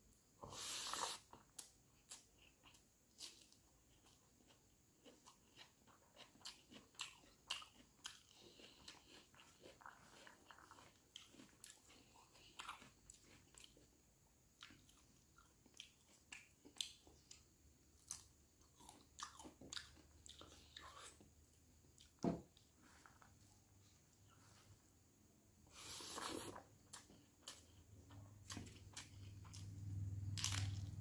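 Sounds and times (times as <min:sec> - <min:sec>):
person chewing and crunching: 0:00.6 - 0:23.4, 0:25.8 - 0:31.0.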